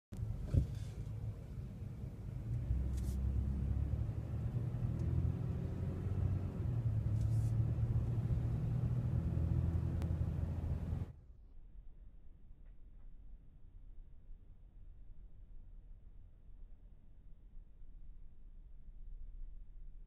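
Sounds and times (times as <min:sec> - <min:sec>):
road noise: 0:00.1 - 0:11.1
car engine rumble: 0:00.1 - 0:11.2.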